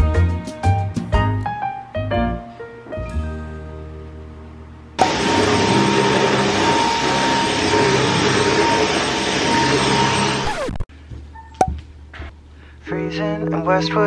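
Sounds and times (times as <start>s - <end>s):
appliance motor hissing and whining: 5.0s - 10.8s.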